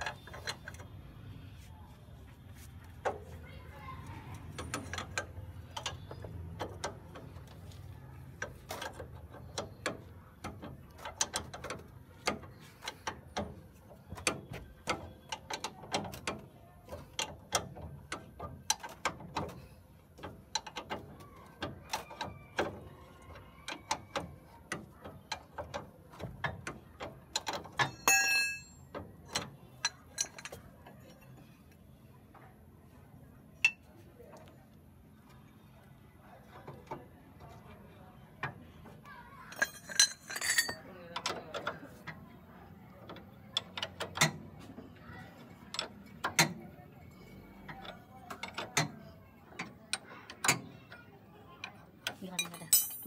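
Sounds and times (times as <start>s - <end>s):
metallic clink of tools: 27.8s - 28.8s, 39.5s - 40.8s, 52.4s - 53.0s.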